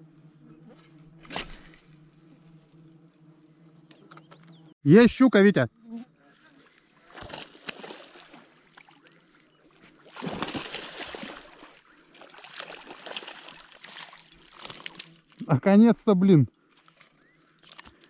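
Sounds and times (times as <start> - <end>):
water splashing: 7.0 - 9.3, 9.9 - 15.0.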